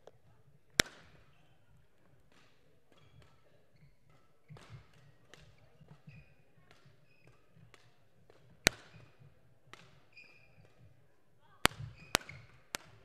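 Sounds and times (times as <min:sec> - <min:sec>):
rackets hitting shuttlecocks: 0:00.7 - 0:01.4, 0:02.0 - 0:11.0, 0:11.6 - 0:13.0
shoes squeaking on court floor: 0:02.9 - 0:07.9, 0:10.1 - 0:10.9, 0:11.7 - 0:12.7.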